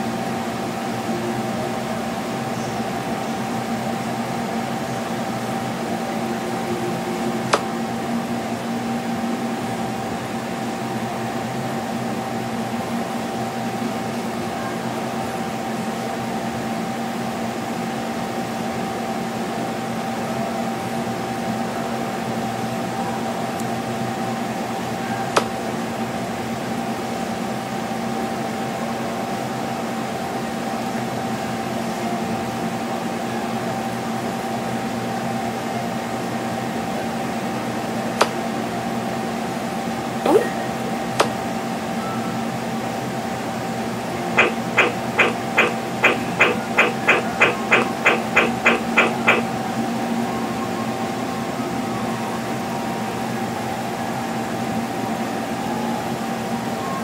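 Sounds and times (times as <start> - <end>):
machine hum with high whine: 0.0 - 57.0
sharp clicks: 44.4 - 49.5.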